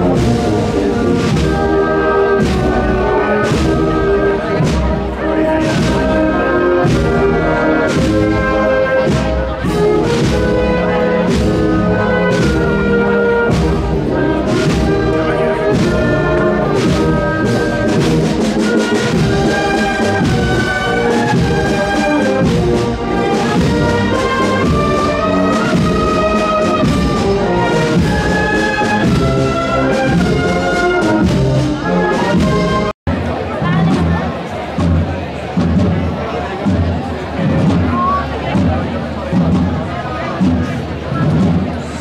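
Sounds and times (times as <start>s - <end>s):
brass band playing a march: 0.0s - 33.0s, 33.6s - 42.0s
steady drum beat: 0.0s - 42.0s.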